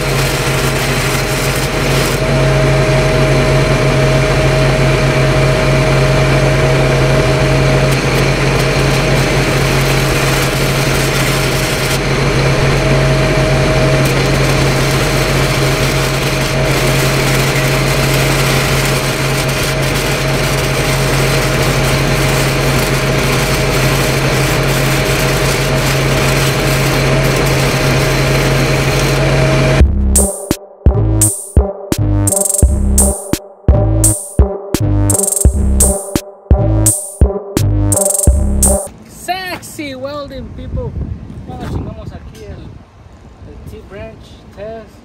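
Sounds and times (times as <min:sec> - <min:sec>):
welding arc hissing: 0:00.0 - 0:03.8, 0:05.0 - 0:31.6, 0:32.2 - 0:33.4, 0:34.0 - 0:36.2
welding machine engine running: 0:00.0 - 0:38.9.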